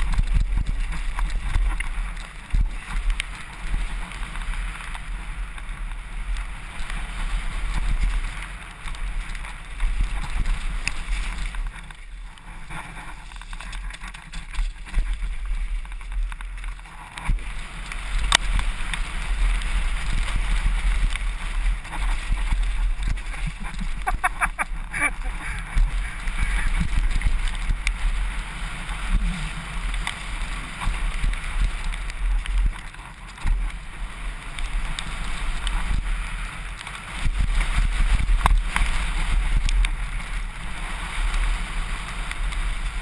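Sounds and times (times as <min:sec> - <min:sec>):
bike tyres crunching on gravel: 0:00.0 - 0:43.0
wind buffeting microphone: 0:00.0 - 0:43.0.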